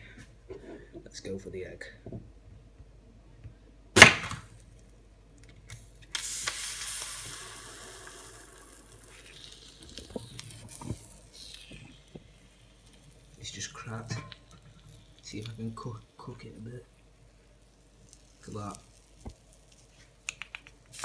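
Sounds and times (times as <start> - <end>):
hot blade sizzling in egg: 6.2 - 16.0.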